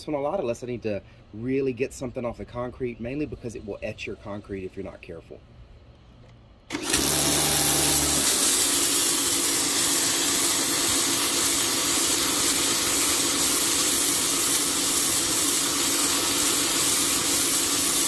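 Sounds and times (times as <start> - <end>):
pressure washer motor hum: 6.7 - 18.0
water jet hissing on concrete: 6.9 - 18.0.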